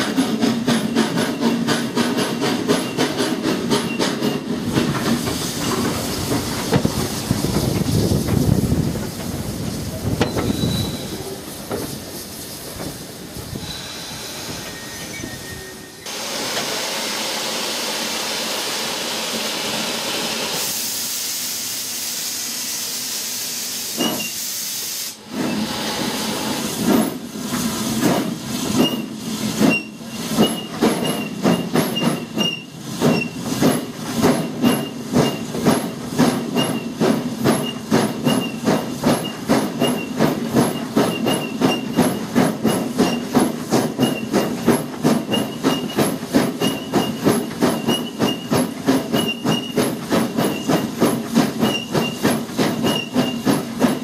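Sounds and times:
steam hissing: 0:00.0 - 0:54.0
thin high squeal: 0:10.3 - 0:11.3, 0:14.6 - 0:16.1
steam locomotive exhaust chuffs: 0:16.0 - 0:54.0.

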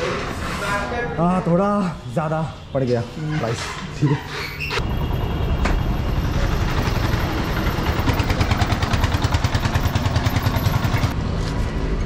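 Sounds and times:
engine running with pulsing beat: 0:05.1 - 0:11.2.

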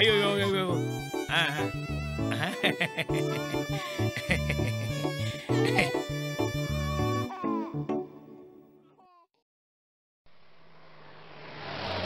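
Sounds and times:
background music with bass line: 0:00.0 - 0:07.3.

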